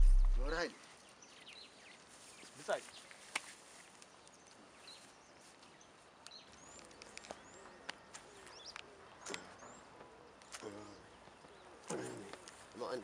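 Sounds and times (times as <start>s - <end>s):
steady low hiss: 0.0s - 0.7s
small birds chirping: 0.0s - 3.3s, 4.1s - 12.9s.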